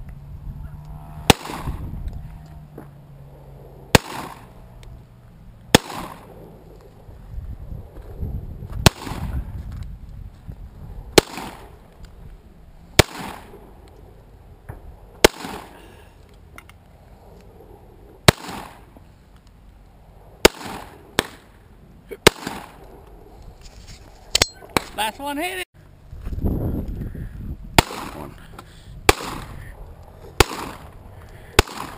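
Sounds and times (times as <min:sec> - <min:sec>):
pistol shots: 0:01.2 - 0:01.8, 0:03.9 - 0:04.6, 0:05.7 - 0:06.3, 0:11.2 - 0:11.7, 0:13.0 - 0:13.6, 0:15.2 - 0:15.8, 0:18.3 - 0:18.8, 0:20.4 - 0:21.4, 0:22.2 - 0:22.8, 0:27.8 - 0:28.3, 0:29.1 - 0:29.5, 0:30.4 - 0:30.9, 0:31.6 - 0:31.9.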